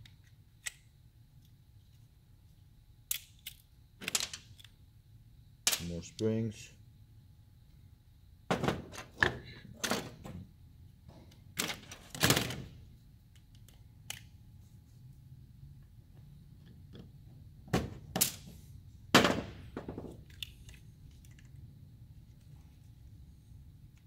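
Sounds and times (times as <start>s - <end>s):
plastic parts knocking and clicking: 19.2s - 21.6s.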